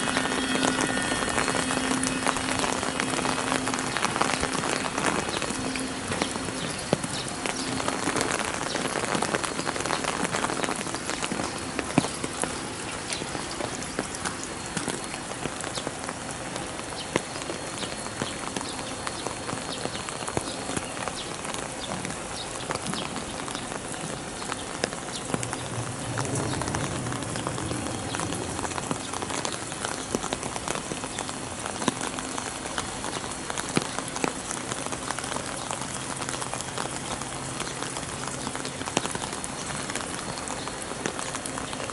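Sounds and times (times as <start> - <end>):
low hum: 0.0 - 9.0
close drops ticking: 0.0 - 15.8
rain pattering: 0.0 - 41.9.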